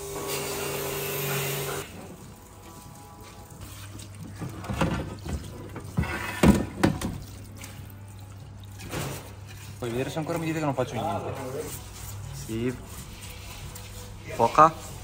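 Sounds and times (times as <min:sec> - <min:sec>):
water running and splashing: 0:01.8 - 0:15.0
knocks against tub: 0:04.4 - 0:07.2.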